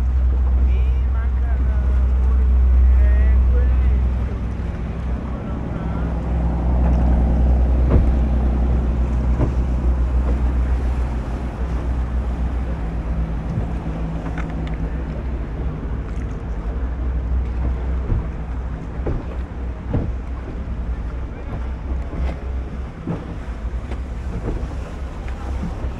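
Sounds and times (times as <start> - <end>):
boat engine rumbling: 0.0 - 25.9
wind on microphone: 0.0 - 25.9
light knocks: 9.3 - 10.6.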